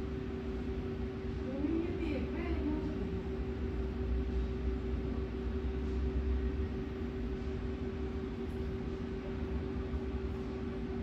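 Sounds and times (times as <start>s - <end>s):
mechanical hum: 0.0s - 11.0s.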